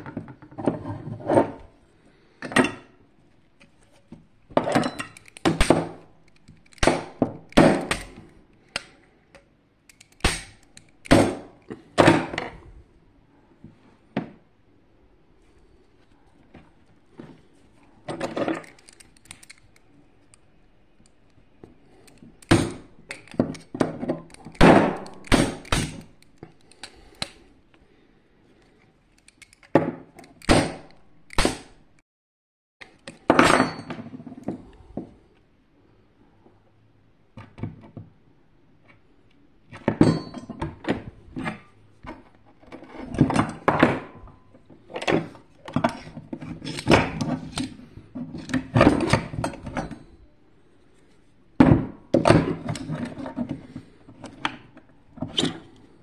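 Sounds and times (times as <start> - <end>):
metal parts knocking and clinking: 4.5 - 8.8, 18.1 - 19.8.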